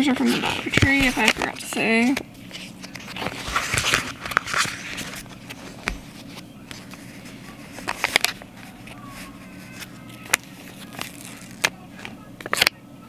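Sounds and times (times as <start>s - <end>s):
stickers peeled and pressed: 0.4s - 12.8s
paper rustling: 2.5s - 12.7s.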